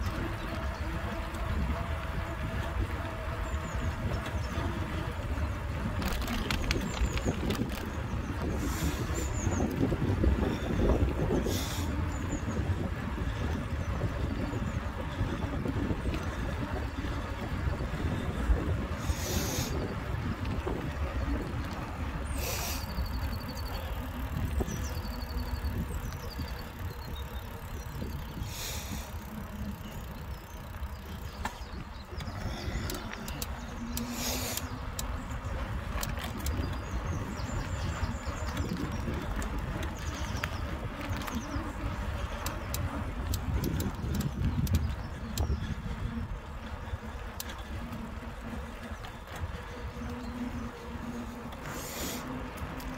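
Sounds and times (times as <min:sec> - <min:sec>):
bike tyres rolling on tarmac: 0:00.0 - 0:52.9
wind on microphone: 0:00.0 - 0:52.9
short hissing puffs: 0:22.4 - 0:22.9, 0:34.0 - 0:34.7, 0:51.7 - 0:52.4.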